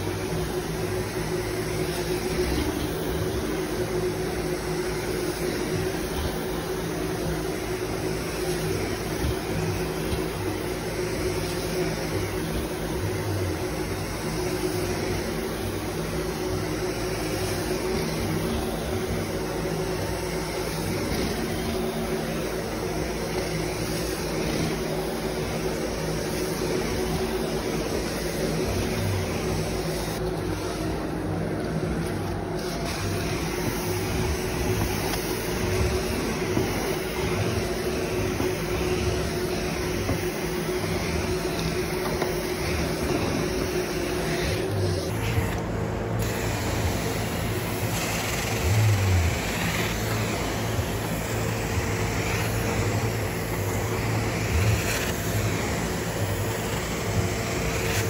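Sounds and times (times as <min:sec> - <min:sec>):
steady hum: 0:00.0 - 0:58.0
vacuum rushing drone: 0:00.0 - 0:58.0
wand spraying and sucking water: 0:32.0 - 0:45.6.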